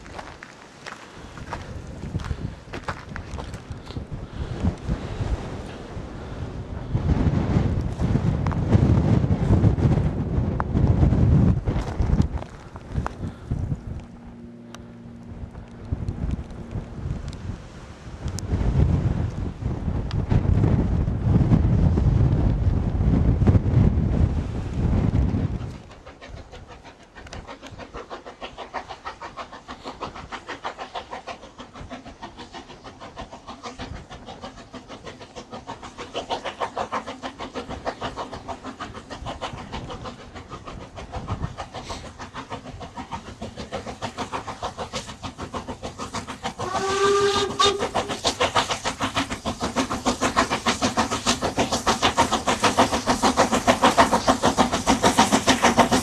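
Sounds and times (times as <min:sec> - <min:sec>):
steam locomotive exhaust beating: 0:00.0 - 0:56.0
steam whistle blast: 0:46.6 - 0:48.0.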